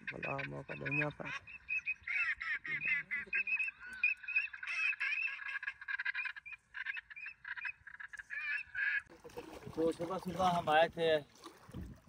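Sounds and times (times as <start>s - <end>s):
many birds chattering: 0.0s - 9.1s.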